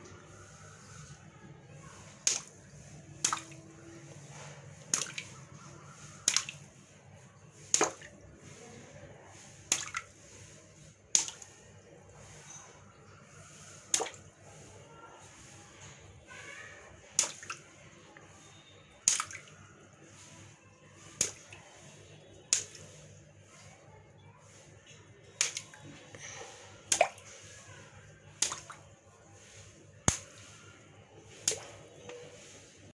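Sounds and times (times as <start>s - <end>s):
water splashing onto floor: 0.1s - 32.8s
water balloons popping: 2.1s - 5.4s, 6.2s - 6.7s, 7.7s - 8.2s, 9.6s - 10.2s, 11.1s - 11.6s, 13.8s - 14.4s, 17.1s - 17.7s, 19.0s - 19.9s, 21.0s - 21.6s, 22.5s - 23.0s, 25.3s - 26.0s, 26.6s - 27.4s, 28.3s - 29.0s, 30.0s - 30.5s, 31.2s - 32.4s.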